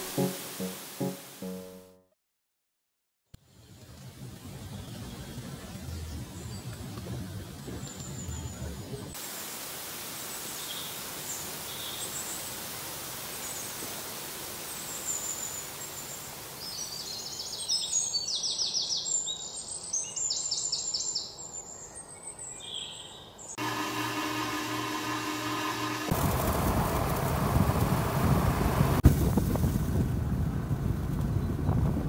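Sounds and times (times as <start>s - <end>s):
small waterfall rushing: 0.0s - 1.4s, 9.2s - 16.7s.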